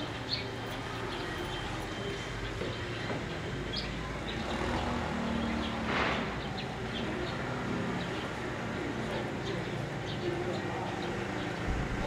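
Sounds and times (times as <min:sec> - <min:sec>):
low rumble: 0:11.7 - 0:12.0.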